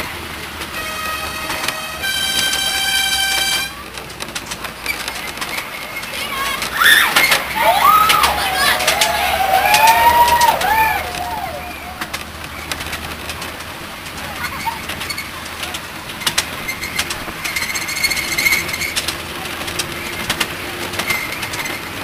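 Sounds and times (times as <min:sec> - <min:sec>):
miniature train running on track: 0:00.0 - 0:22.0
wheels clicking over rail joints: 0:00.0 - 0:22.0
high wheel squeal: 0:04.8 - 0:12.1, 0:16.5 - 0:19.1, 0:21.0 - 0:22.0
wavering rising and falling calls: 0:06.0 - 0:12.1.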